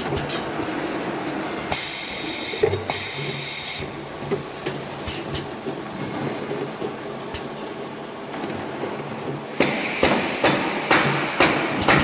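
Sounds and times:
compressed air hissing: 0:01.7 - 0:03.9, 0:09.5 - 0:11.8.

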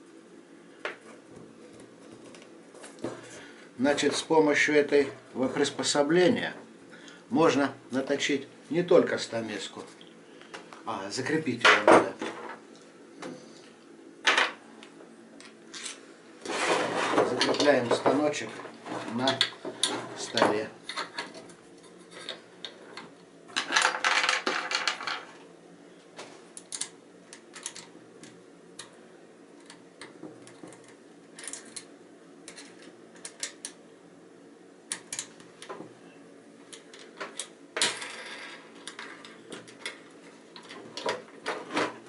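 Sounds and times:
scraping on table: 0:15.8 - 0:20.6.

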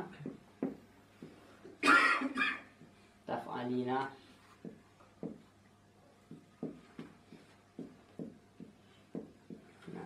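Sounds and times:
marker tapping on whiteboard: 0:00.2 - 0:01.8, 0:04.6 - 0:05.5, 0:06.2 - 0:10.0.

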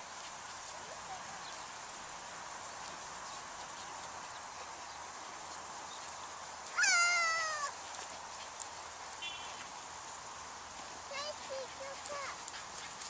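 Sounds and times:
steady background hiss: 0:00.0 - 0:13.0
child squealing: 0:06.8 - 0:07.7.

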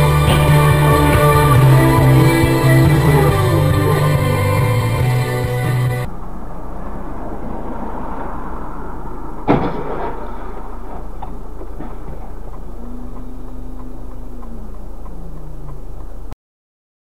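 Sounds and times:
in-car road and engine rumble: 0:00.0 - 0:16.4
sharp crash bang: 0:09.4 - 0:12.1.

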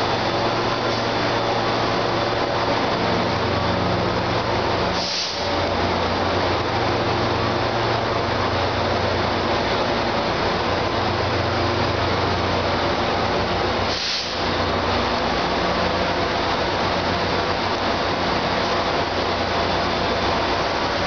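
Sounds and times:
locomotive engine hum: 0:00.0 - 0:21.0
short hiss: 0:05.0 - 0:05.5, 0:13.9 - 0:14.4.

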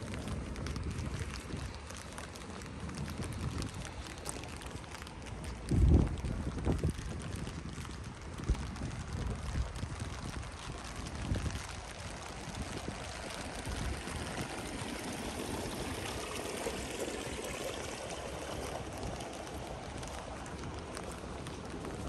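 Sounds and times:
rain: 0:00.0 - 0:22.0
flowing water rushing: 0:11.0 - 0:22.0.

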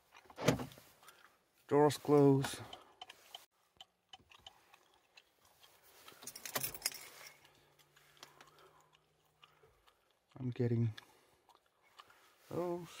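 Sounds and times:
clicks and rattling: 0:06.1 - 0:07.4.

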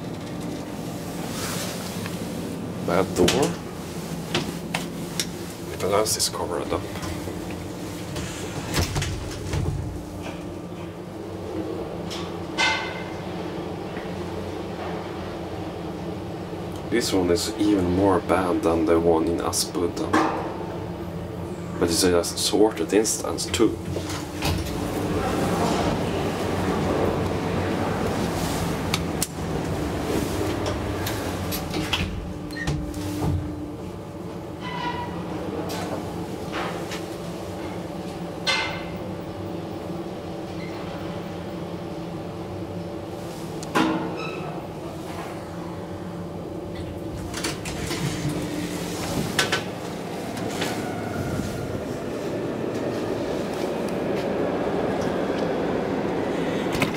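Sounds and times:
elevator doors sliding shut: 0:00.0 - 0:13.8, 0:23.1 - 0:39.0, 0:43.1 - 0:56.9
steady low hum: 0:00.0 - 0:56.9.

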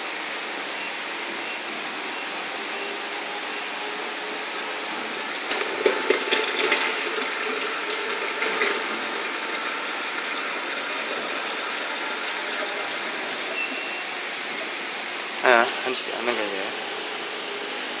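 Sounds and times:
machine background hum: 0:00.0 - 0:18.0
milk pouring into jug: 0:04.6 - 0:13.6.

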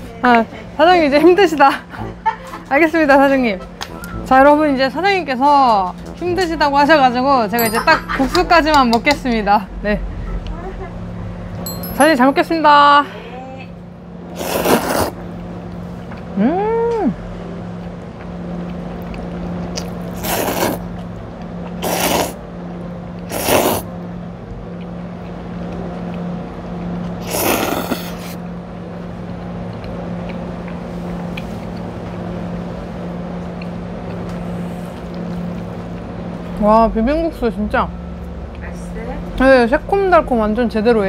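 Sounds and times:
low background hum: 0:00.0 - 0:41.0
noodles being slurped: 0:14.3 - 0:15.2, 0:19.8 - 0:21.0, 0:21.7 - 0:22.4, 0:23.2 - 0:23.9, 0:27.2 - 0:28.4
person humming: 0:16.3 - 0:17.2.

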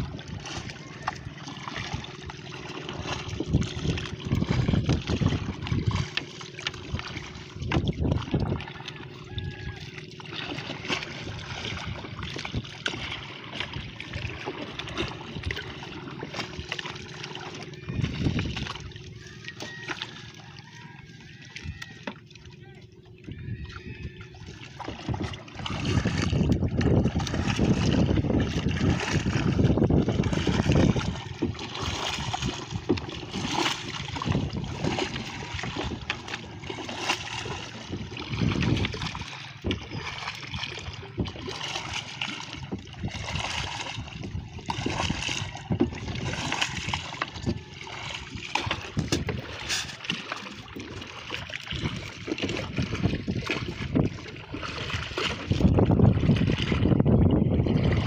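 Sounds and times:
wind rumbling on microphone: 0:00.0 - 0:09.9, 0:17.8 - 0:19.4, 0:23.2 - 0:50.1, 0:51.6 - 0:58.0
paddle splashing water: 0:00.0 - 0:58.0.

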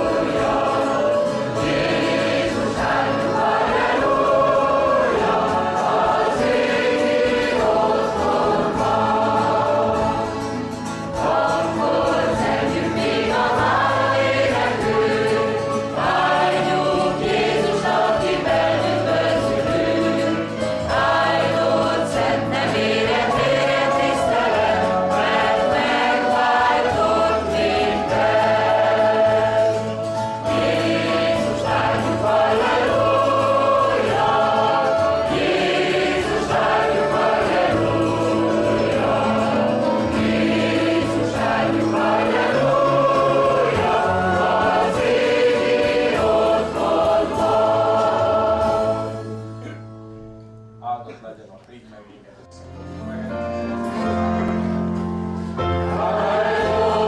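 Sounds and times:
mixed choir singing a hymn: 0:00.0 - 0:49.8, 0:53.0 - 0:57.0.

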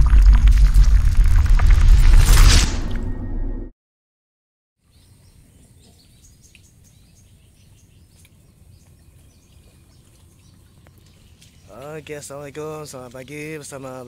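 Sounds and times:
small birds chirping: 0:04.8 - 0:14.0.

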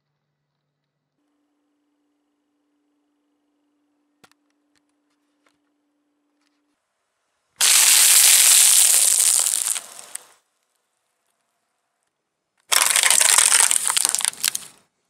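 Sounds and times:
tyre crushing crunchy rice cakes: 0:07.6 - 0:10.3, 0:12.7 - 0:14.8.

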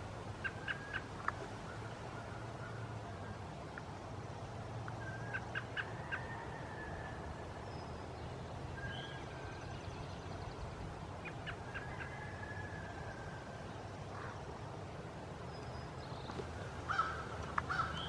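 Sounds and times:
faint songbird notes: 0:04.4 - 0:14.6.

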